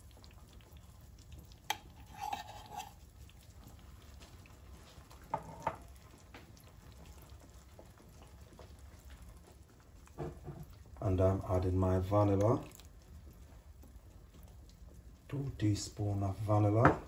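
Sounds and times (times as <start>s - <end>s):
spoon stirring thick porridge: 1.2s - 3.4s.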